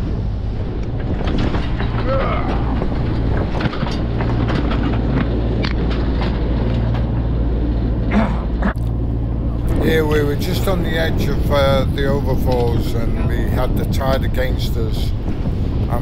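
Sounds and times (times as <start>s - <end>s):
knocks and rattles: 0.0s - 8.1s
boat engine droning: 0.0s - 16.0s.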